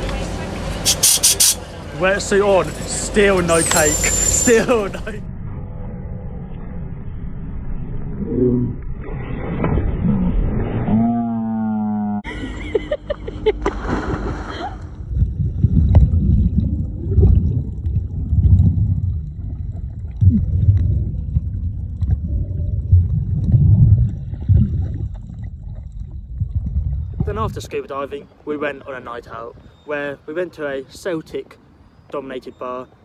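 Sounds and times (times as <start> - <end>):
scuba diver exhaling bubbles: 14.2 - 27.3.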